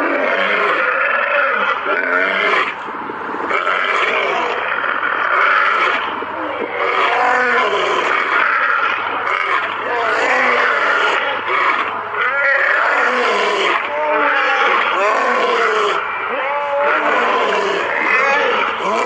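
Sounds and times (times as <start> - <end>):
lions roaring and growling: 0.0 - 19.0.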